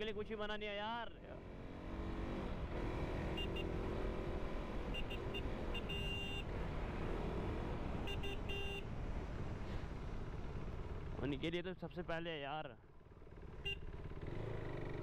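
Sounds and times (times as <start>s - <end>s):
motorcycle engine rumble: 12.8s - 15.0s.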